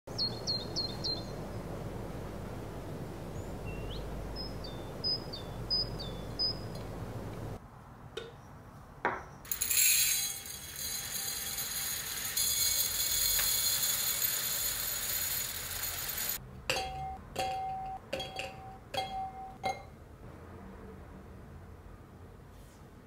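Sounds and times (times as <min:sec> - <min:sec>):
small birds chirping: 0:00.1 - 0:01.8, 0:03.2 - 0:07.6
steady background hiss: 0:00.1 - 0:07.6
rice pouring into glass jar: 0:09.5 - 0:16.4
glass jars clinking: 0:16.7 - 0:19.9.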